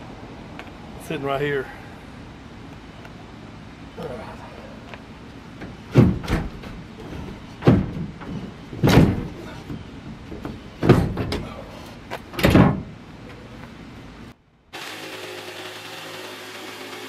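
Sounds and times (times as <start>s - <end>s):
board banging and scraping on truck: 5.6s - 13.0s.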